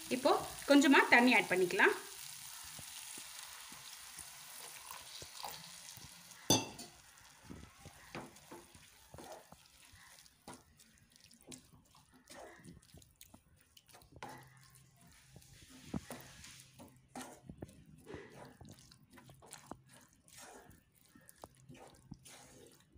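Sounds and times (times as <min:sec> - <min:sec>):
water hissing in hot pan: 0:00.0 - 0:10.1
spoon scraping and stirring: 0:02.7 - 0:22.9
spoon knocking on pan: 0:06.5 - 0:07.0.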